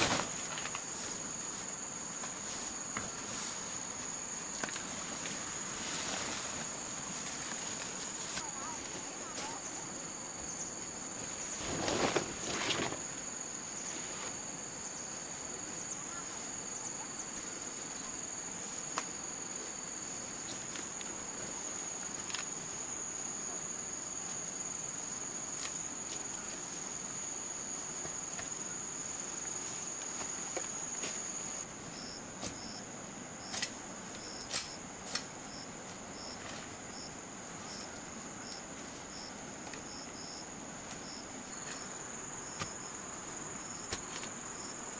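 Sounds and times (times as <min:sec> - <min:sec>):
leaves rustling: 0:00.0 - 0:16.7
pulsing insect chirp: 0:00.0 - 0:44.9.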